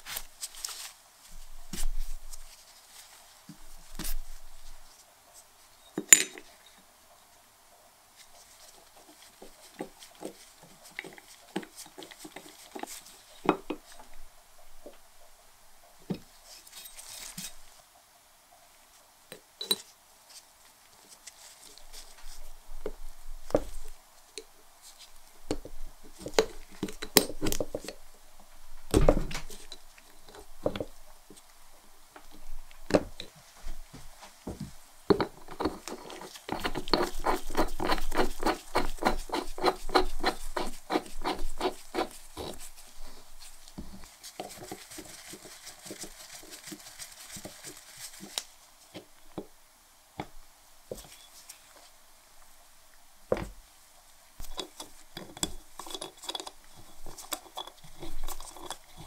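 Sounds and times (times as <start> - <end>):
screwdriver clicks and scrapes on metal: 54.4 - 59.0.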